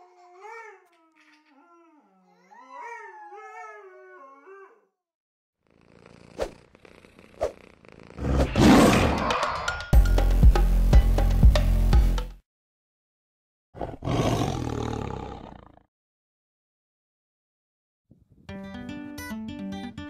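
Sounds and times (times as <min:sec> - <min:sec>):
loud roar: 0:08.2 - 0:09.8
music with steady beat: 0:10.0 - 0:12.4.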